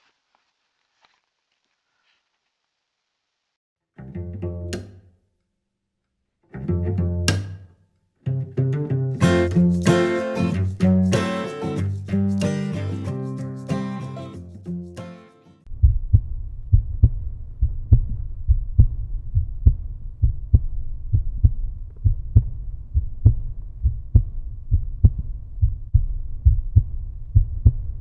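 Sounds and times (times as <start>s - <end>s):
acoustic guitar music: 8.3s - 15.7s
deep low thumping beat: 15.7s - 28.0s.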